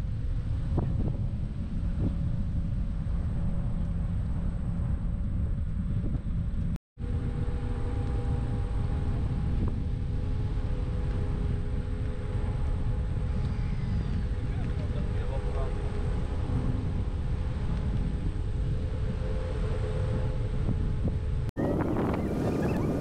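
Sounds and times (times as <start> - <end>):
low rumble of vehicle: 0.0 - 23.0
wind noise: 0.0 - 23.0.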